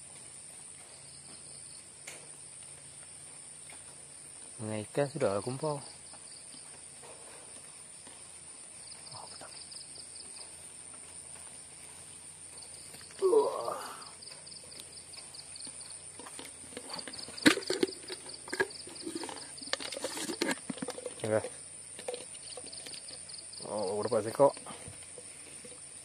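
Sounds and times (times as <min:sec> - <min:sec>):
insects droning and chirping: 0:00.0 - 0:26.0
handling knocks and rustling: 0:14.2 - 0:23.3.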